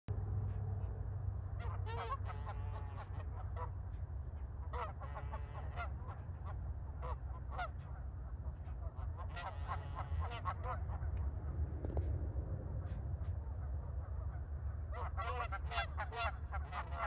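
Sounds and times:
steady low rumble: 0.1 - 17.0
geese honking: 1.5 - 4.0, 4.6 - 11.2, 14.0 - 17.0.

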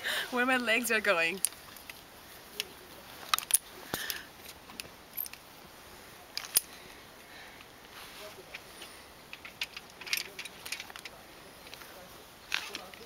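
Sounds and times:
metal chains and carabiner clinking: 3.3 - 4.2, 5.1 - 5.4, 8.4 - 11.8.

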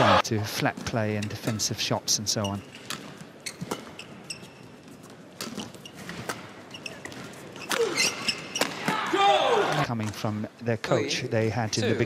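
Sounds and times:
court shoes squeaking: 2.3 - 9.0.

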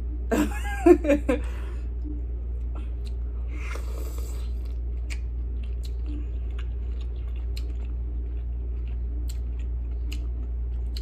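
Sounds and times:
low hum: 0.0 - 11.0
chewing with wet clicks: 4.5 - 11.0.

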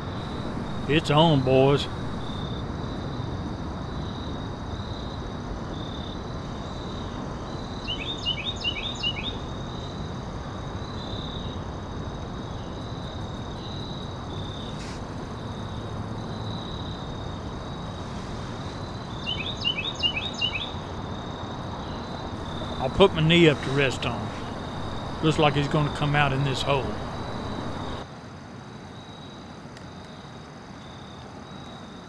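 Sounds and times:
insects trilling: 0.0 - 3.2, 4.0 - 10.1, 10.7 - 28.0
bird chirping: 0.2 - 2.4, 22.4 - 28.0
low hiss: 0.2 - 2.4, 22.4 - 28.0.

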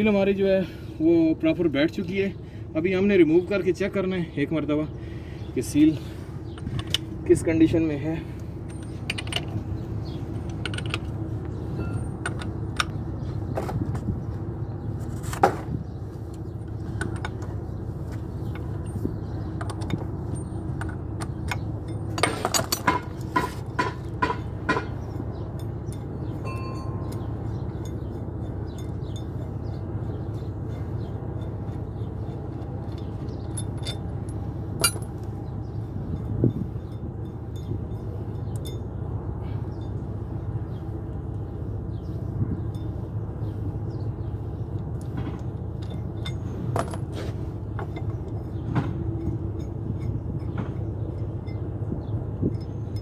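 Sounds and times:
steady low hum: 0.0 - 53.0
metal tools clinking on metal: 8.6 - 13.0, 18.5 - 35.5, 36.1 - 39.0, 45.1 - 53.0.

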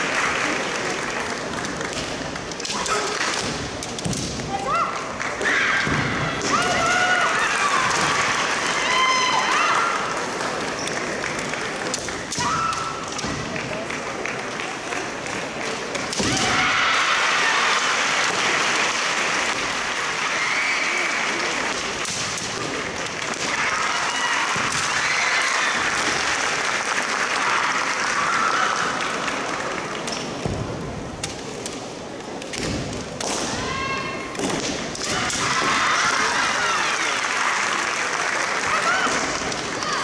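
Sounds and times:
bamboo swords cracking: 2.0 - 4.5.

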